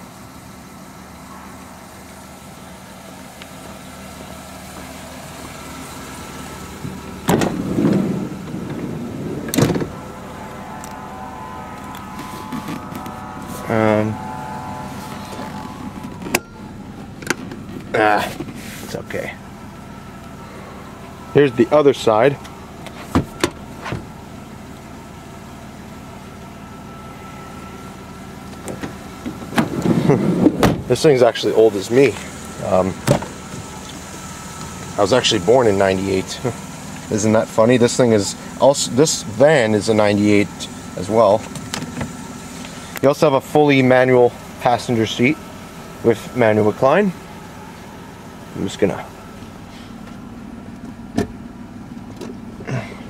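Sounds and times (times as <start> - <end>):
minivan idling: 0.0 - 53.0
car door clunk: 7.2 - 9.9, 22.8 - 24.0, 28.6 - 30.9.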